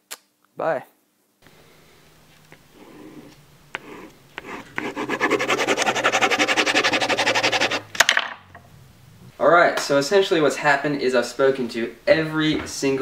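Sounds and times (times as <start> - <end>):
pen scribbling on paper: 3.8 - 7.9.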